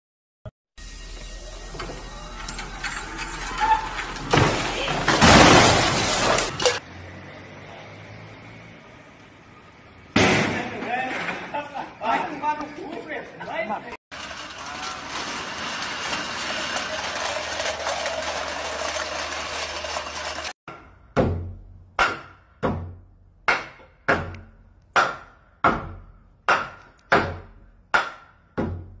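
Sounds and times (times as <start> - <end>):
hammer striking wooden board: 20.7 - 29.0.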